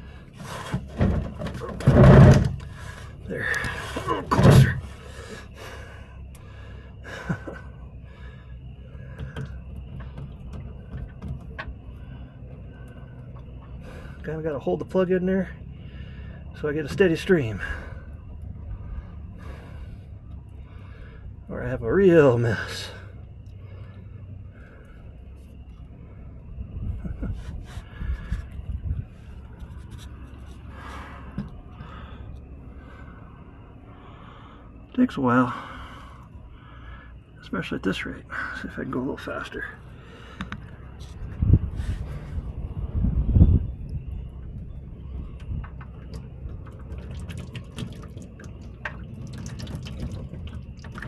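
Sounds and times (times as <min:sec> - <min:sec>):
small clicks and knocks: 0:09.1 - 0:11.8, 0:45.1 - 0:51.0
low rumbling thumps: 0:22.4 - 0:34.8, 0:40.0 - 0:51.0
oil draining into a pan: 0:46.6 - 0:51.0.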